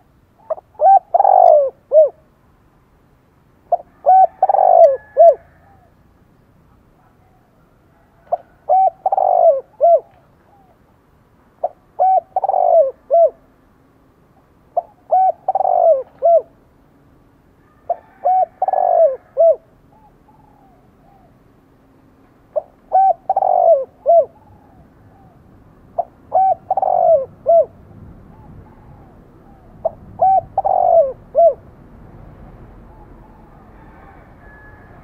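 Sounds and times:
dove cooing: 0:00.0 - 0:02.3, 0:03.7 - 0:06.0, 0:07.0 - 0:10.8, 0:11.6 - 0:13.5, 0:14.8 - 0:16.6, 0:17.7 - 0:21.4, 0:22.5 - 0:31.7, 0:32.8 - 0:35.0.

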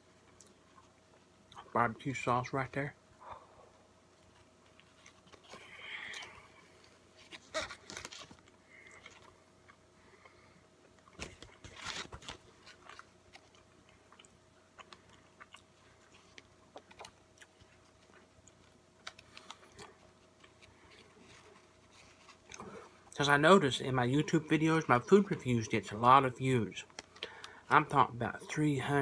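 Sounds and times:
person chewing food: 0:00.2 - 0:01.7, 0:12.5 - 0:23.2.

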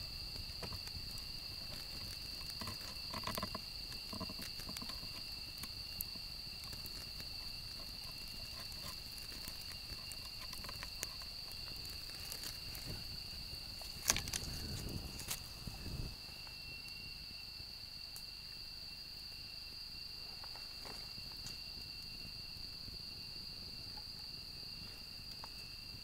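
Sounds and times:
firewood rustling and scraping: 0:00.0 - 0:16.5, 0:20.2 - 0:21.6
campfire crackling: 0:00.0 - 0:26.0
insects droning: 0:00.0 - 0:26.0.

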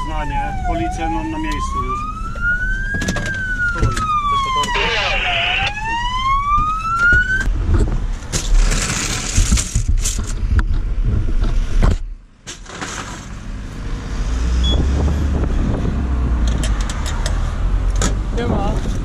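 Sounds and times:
road traffic: 0:00.0 - 0:19.0
knocks and scraping of gear: 0:07.4 - 0:13.4.

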